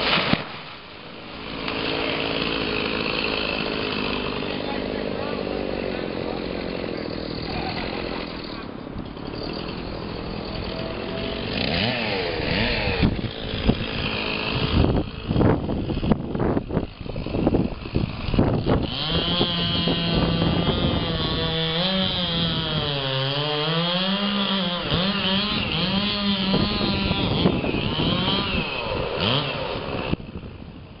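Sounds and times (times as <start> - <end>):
branches knocking and cracking: 0.0 - 0.9
chainsaw cutting wood: 0.0 - 30.5.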